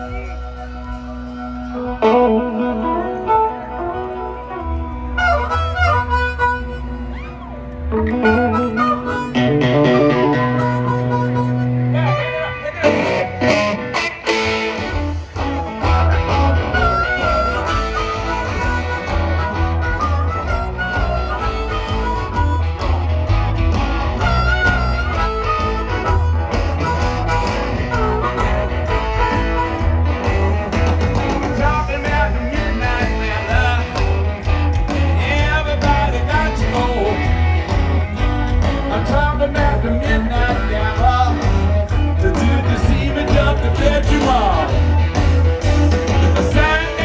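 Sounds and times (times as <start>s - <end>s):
electric guitar: 0.0s - 47.0s
heavy bass: 12.8s - 47.0s
man singing: 31.4s - 37.4s, 38.6s - 45.1s, 45.7s - 47.0s.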